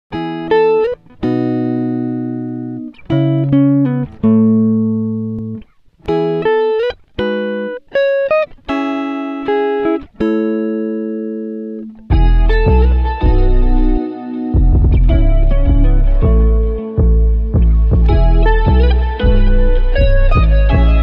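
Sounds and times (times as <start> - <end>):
plucked string melody: 0.1 - 21.0
deep bass: 12.1 - 14.0, 14.6 - 21.0.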